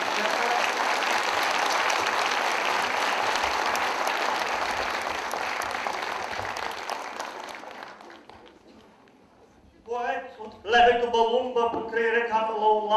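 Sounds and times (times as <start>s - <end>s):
people applauding: 0.0s - 8.9s.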